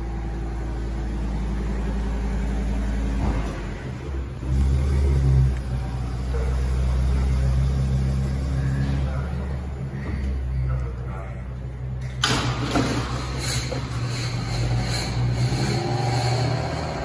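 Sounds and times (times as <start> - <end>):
engine idling and revving: 0.0 - 17.0.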